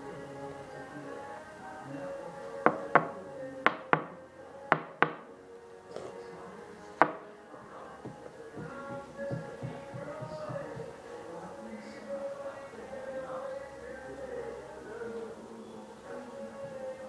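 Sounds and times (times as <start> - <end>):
quiet background music: 0.0 - 17.0
knocks on a hard object: 4.8 - 5.2, 7.0 - 7.2, 8.0 - 10.9.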